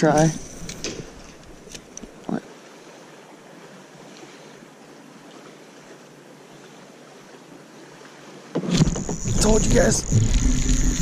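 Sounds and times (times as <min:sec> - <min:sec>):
light wind: 0:00.0 - 0:11.0.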